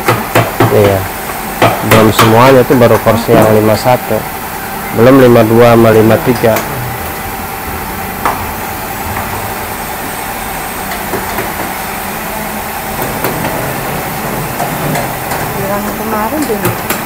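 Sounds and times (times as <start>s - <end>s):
hand tools knocking on wood: 0.0s - 2.5s, 11.0s - 11.8s, 13.0s - 17.0s
machinery hum: 0.0s - 17.0s.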